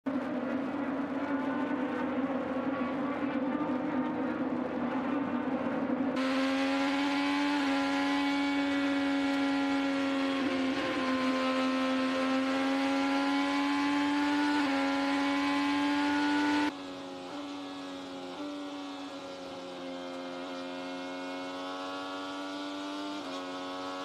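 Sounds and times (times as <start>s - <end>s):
racing car engine high-revving: 6.2s - 24.0s.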